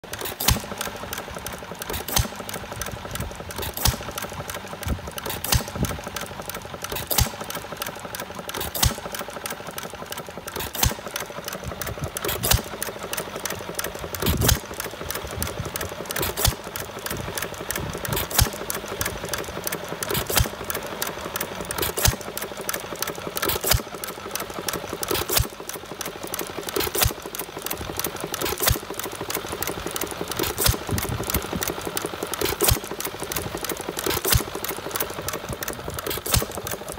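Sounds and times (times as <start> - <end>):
fast mechanical clatter: 0.0 - 36.9
hit-and-miss engine running: 0.0 - 36.9.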